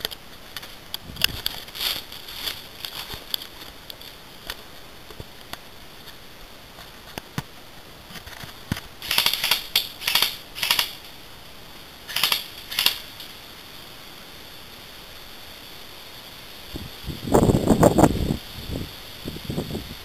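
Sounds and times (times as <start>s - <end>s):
footsteps crunching dry leaves: 0.7s - 4.8s.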